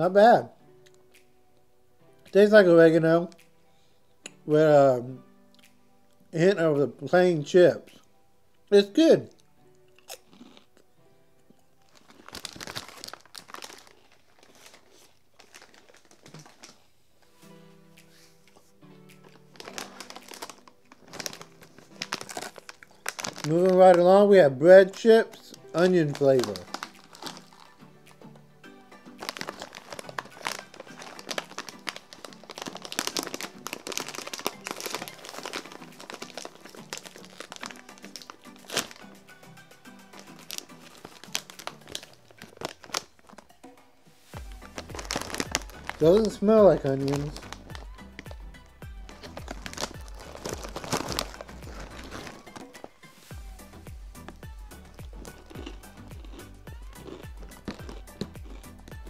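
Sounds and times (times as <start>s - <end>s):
plastic chip bag crinkling: 11.9s - 16.9s, 19.3s - 27.8s, 29.2s - 39.2s, 40.1s - 43.6s, 44.4s - 48.4s, 49.0s - 53.0s, 53.7s - 59.0s.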